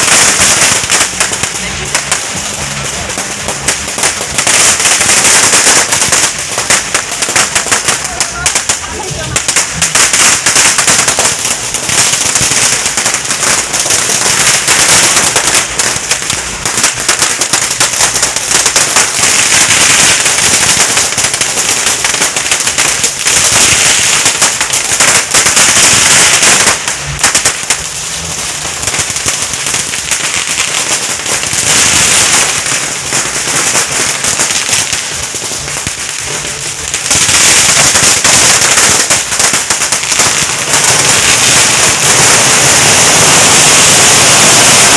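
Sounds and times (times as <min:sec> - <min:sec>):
firecrackers banging rapidly: 0:00.0 - 0:44.9.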